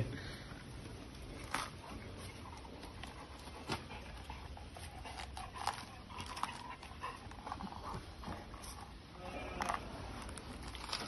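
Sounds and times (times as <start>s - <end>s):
dog teeth crunching coconut husk: 1.3s - 8.9s, 10.2s - 11.0s.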